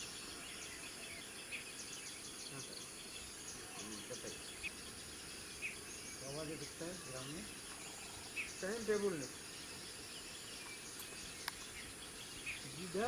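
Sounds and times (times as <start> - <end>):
bird chirps: 0.0 - 13.0
insect drone: 0.0 - 13.0.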